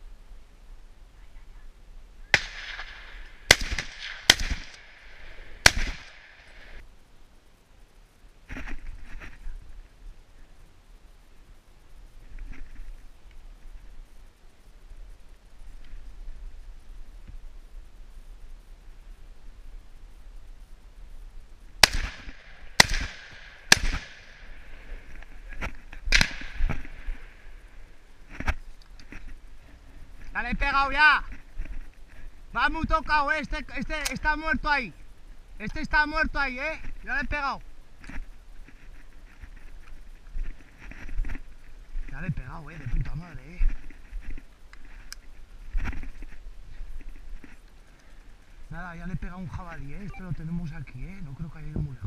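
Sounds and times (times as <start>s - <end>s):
rifle shots: 2.3s - 6.8s, 21.8s - 24.6s, 26.1s - 27.1s
loud gunshots: 2.4s - 6.4s, 21.8s - 24.3s.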